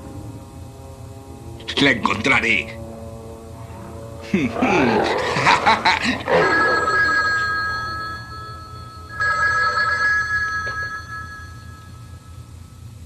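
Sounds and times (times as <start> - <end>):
loud growl: 4.4 - 6.6
telephone two-tone ring: 6.4 - 12.2.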